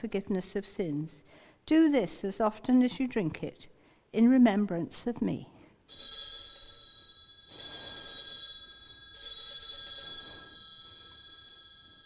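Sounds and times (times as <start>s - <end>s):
altar bells ringing: 5.9s - 12.0s.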